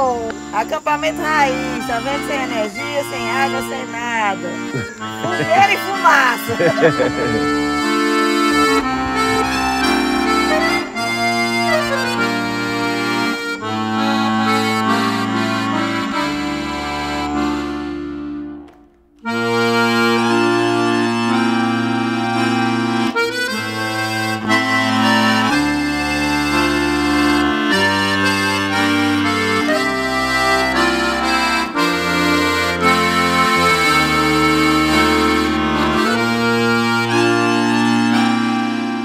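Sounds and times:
accordion background music: 0.0s - 39.0s.

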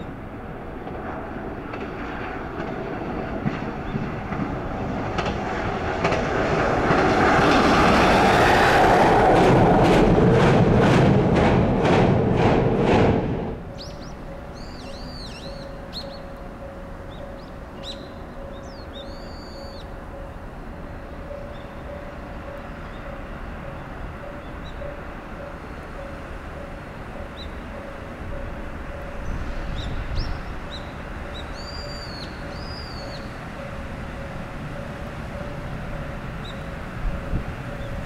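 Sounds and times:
bird calling: 13.7s - 20.0s, 20.6s - 35.7s, 36.4s - 36.8s.

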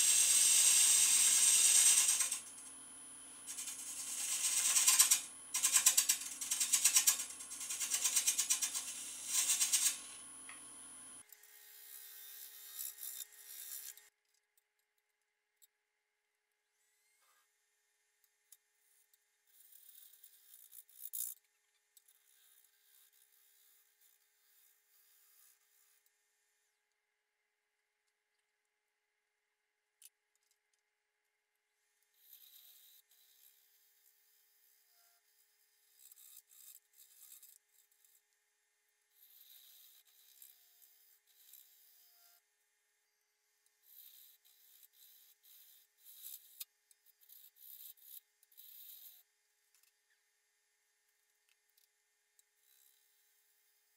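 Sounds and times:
lathe tool scraping wood: 0.0s - 11.2s.

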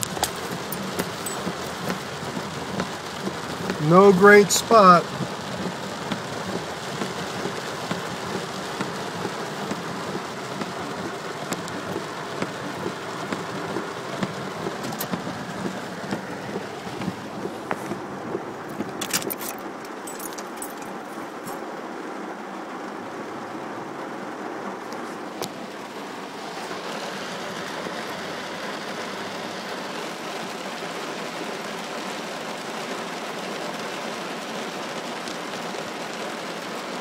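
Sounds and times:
heavy rain on car roof: 0.0s - 37.0s.

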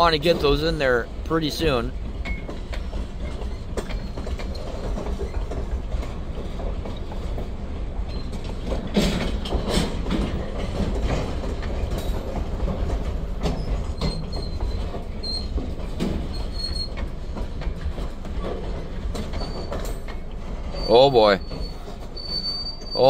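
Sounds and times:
clicks over rail joints: 0.0s - 23.0s
train wheels rumbling on rails: 0.0s - 23.0s
high-pitched wheel squeals: 13.5s - 15.6s, 16.3s - 17.0s, 19.3s - 20.0s, 20.6s - 23.0s.

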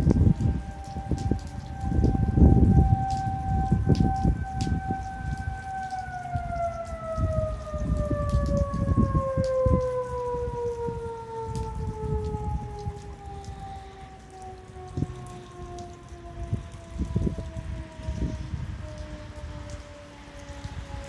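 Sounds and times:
warning siren winding down: 0.0s - 21.0s
wind rumbling on microphone: 0.0s - 21.0s.

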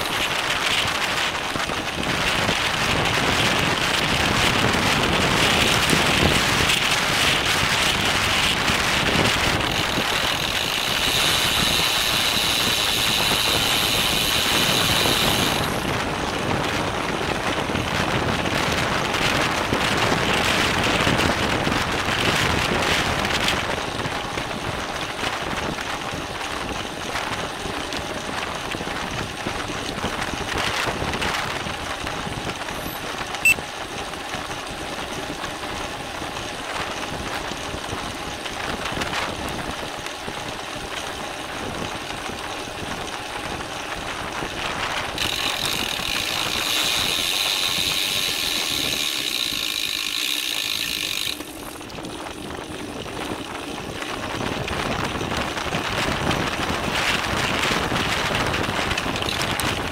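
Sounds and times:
bicycle freehub ticking: 0.0s - 18.6s, 31.8s - 59.9s
wind rushing over microphone: 0.0s - 33.6s, 35.2s - 49.8s, 50.7s - 59.9s
bicycle tyre and drivetrain noise: 0.0s - 59.9s.

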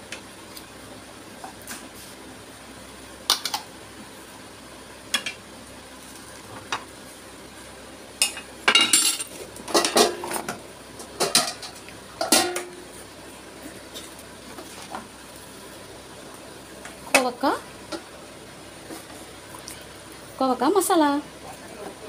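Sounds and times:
steel pots and lids clattering: 8.2s - 10.4s, 11.1s - 12.8s.

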